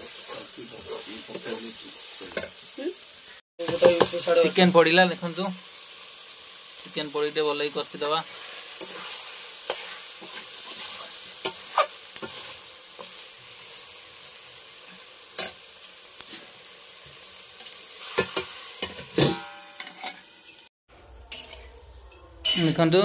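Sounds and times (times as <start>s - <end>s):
metal spatula scraping a pan: 0.0s - 2.6s, 8.0s - 13.2s, 17.6s - 21.8s
curry sizzling in a pan: 0.0s - 23.0s.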